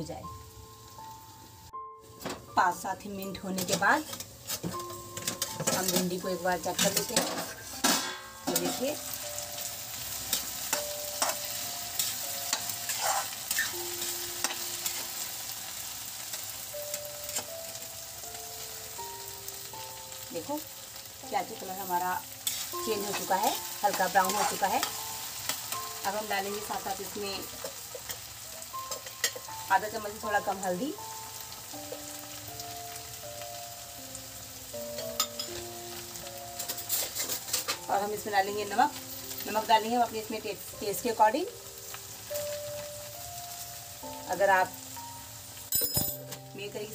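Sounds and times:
vegetables sizzling in a pan: 0.0s - 46.9s
metal spatula scraping a pan: 3.6s - 9.0s, 10.3s - 15.1s, 22.4s - 25.7s, 36.6s - 37.9s.

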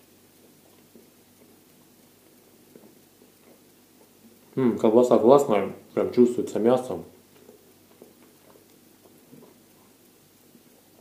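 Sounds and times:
faint chewing: 0.0s - 4.9s, 7.1s - 11.0s
low room hum: 0.0s - 11.0s.

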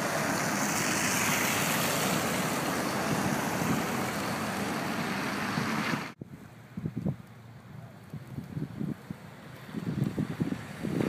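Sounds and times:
tyres on slushy road: 0.0s - 11.0s
wind rushing: 0.9s - 7.2s.

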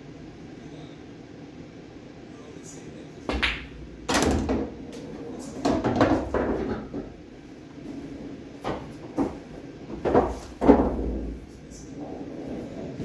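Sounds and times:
pool balls knocking: 3.3s - 7.2s, 7.9s - 11.6s.

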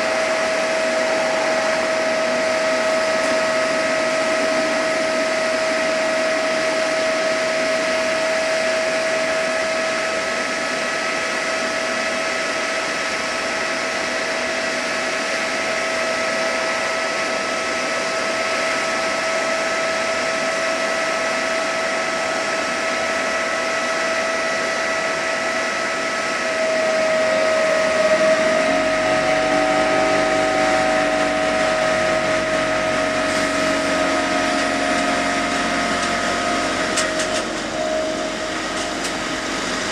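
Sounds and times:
tone sliding in pitch: 0.0s - 8.8s, 25.4s - 39.9s
electric train hum: 0.0s - 39.9s
locomotive blowers whirring: 0.0s - 39.9s.

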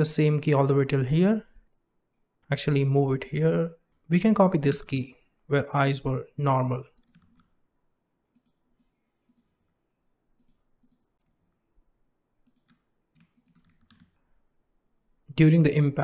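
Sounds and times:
mouse and keyboard clicks: 7.0s - 7.5s, 10.4s - 11.3s, 12.4s - 14.2s.

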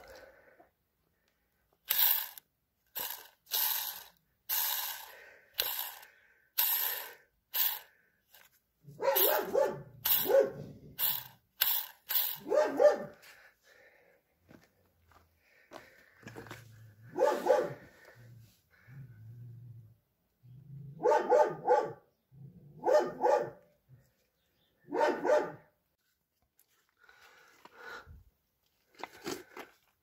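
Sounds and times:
dog barking: 9.0s - 10.7s, 12.4s - 13.2s, 17.1s - 17.9s, 21.0s - 22.1s, 22.8s - 23.6s, 24.9s - 25.7s.

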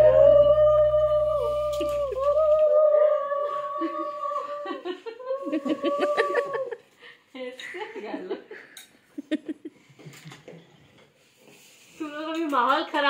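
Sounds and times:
background music: 0.0s - 2.6s
conch shell blown: 0.0s - 3.4s
voices: 0.0s - 6.8s.

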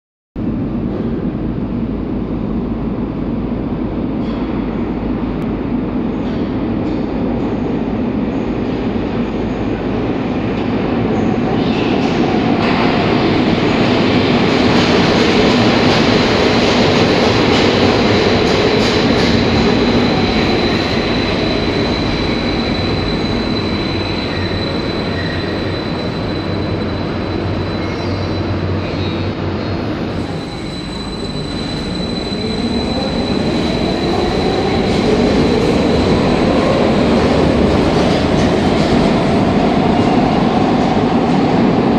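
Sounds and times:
metro train rumbling: 0.4s - 41.9s.

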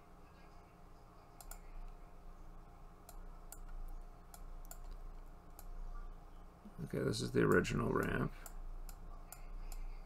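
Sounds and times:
faint low hum: 0.0s - 10.0s
faint mouse clicks: 1.4s - 2.0s, 3.0s - 5.8s, 7.5s - 10.0s.

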